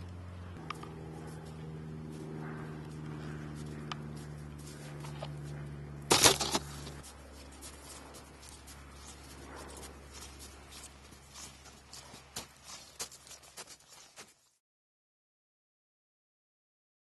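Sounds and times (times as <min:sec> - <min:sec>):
low hum: 0:00.0 - 0:13.7
footsteps crunching in slushy snow: 0:01.0 - 0:14.6.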